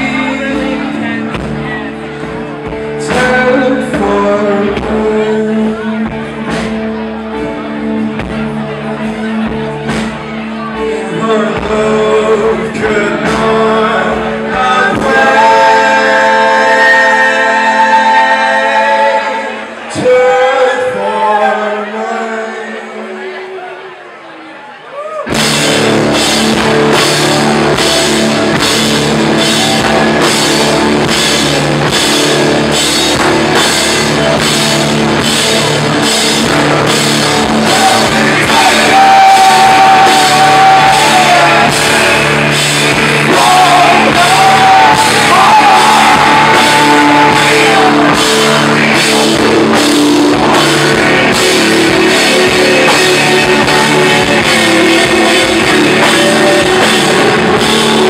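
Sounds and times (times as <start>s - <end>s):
electric guitars: 0.0s - 21.2s, 25.2s - 58.0s
bass guitar: 0.0s - 22.6s, 25.0s - 58.0s
drum kit with cymbals: 25.3s - 58.0s.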